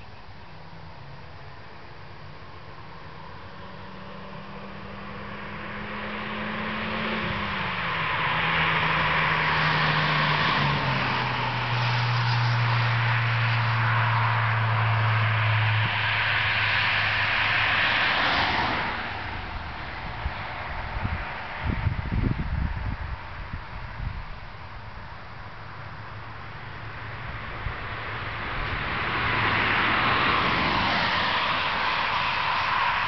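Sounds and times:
tyre and road noise: 0.0 - 33.0
car engine driving past: 1.6 - 22.4, 25.4 - 33.0.

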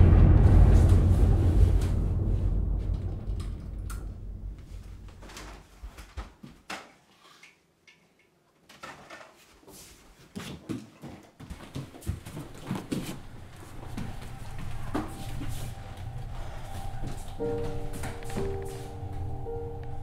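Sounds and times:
hurried footsteps: 9.8 - 20.0.

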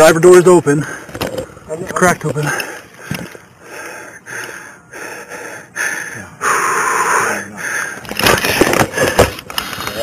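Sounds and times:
man breathing quickly: 0.8 - 1.2, 2.4 - 8.2.

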